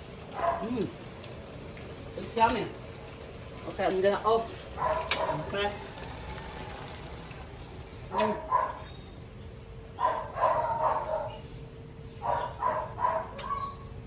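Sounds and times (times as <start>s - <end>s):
dog whining and yipping: 12.2s - 14.0s.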